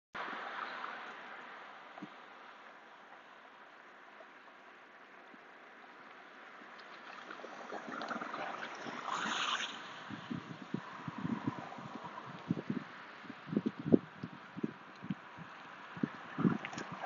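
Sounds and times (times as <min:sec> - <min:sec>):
street ambience hiss: 0:00.2 - 0:17.0
passing vehicle tyre noise: 0:06.4 - 0:17.0.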